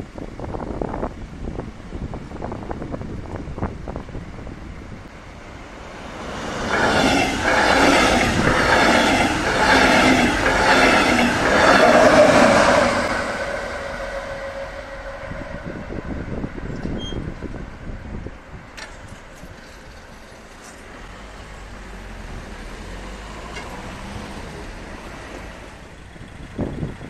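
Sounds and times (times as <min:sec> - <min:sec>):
locomotive hum: 0:00.0 - 0:27.0
train wheels clattering on track: 0:05.7 - 0:14.6, 0:18.7 - 0:21.2, 0:23.3 - 0:27.0.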